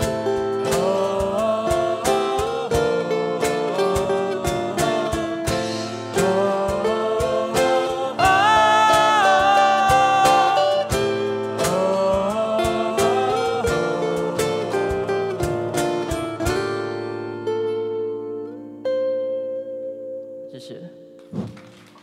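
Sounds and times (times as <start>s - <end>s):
person singing: 0.0s - 17.0s
percussion beat: 0.0s - 17.8s
acoustic guitars: 0.0s - 22.0s.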